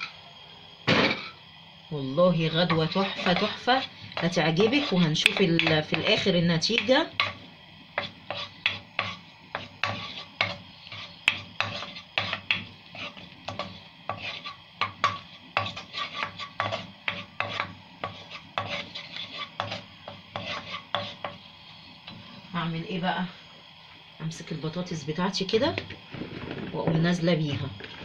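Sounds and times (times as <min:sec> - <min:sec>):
wooden spoon scraping pan: 0:02.5 - 0:07.4, 0:08.0 - 0:21.4.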